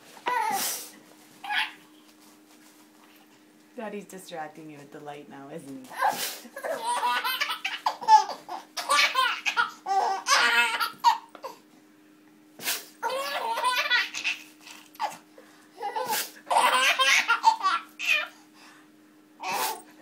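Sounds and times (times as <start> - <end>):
infant laughing: 6.0 - 11.6, 13.0 - 15.2, 15.8 - 18.3.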